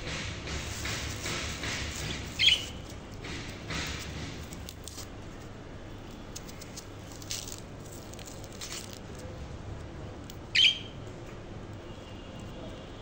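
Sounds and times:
budgerigar chirp: 2.4s - 2.8s, 10.5s - 10.9s.

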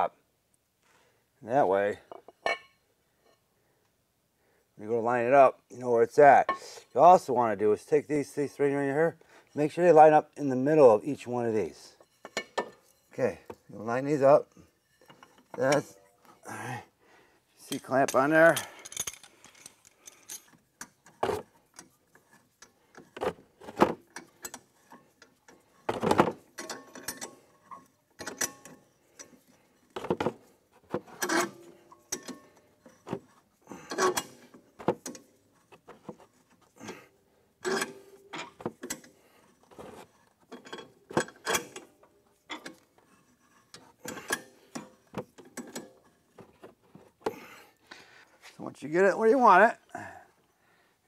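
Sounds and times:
metal clamp clicking and squeaking: 24.1s - 30.0s, 31.0s - 36.7s, 37.6s - 46.1s.

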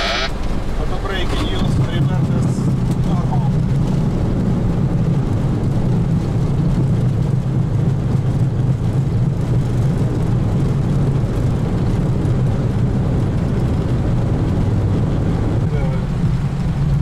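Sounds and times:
airliner rumble on runway: 0.0s - 17.0s.

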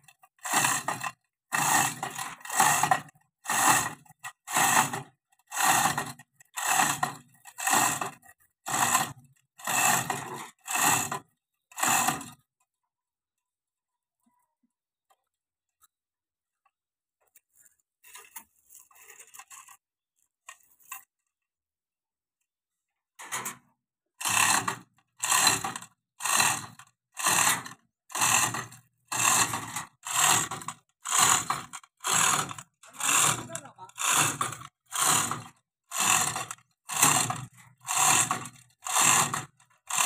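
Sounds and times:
chain hoist ratchet clattering: 0.1s - 12.4s, 24.2s - 40.0s.

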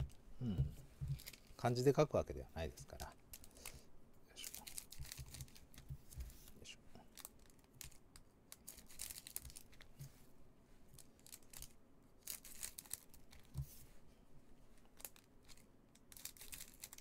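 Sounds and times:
foil wrapper crinkling: 8.6s - 9.9s, 11.1s - 13.5s, 14.9s - 17.0s.

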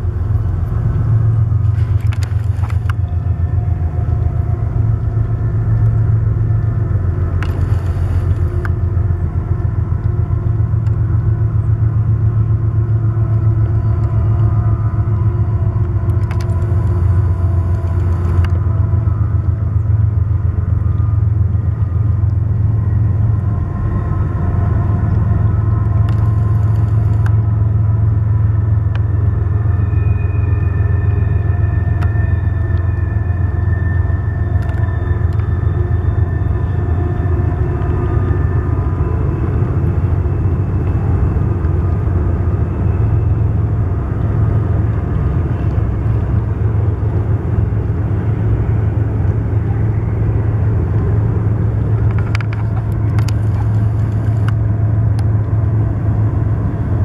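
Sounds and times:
freight train rumbling on rails: 0.0s - 57.0s
faint squeals: 29.1s - 39.2s.

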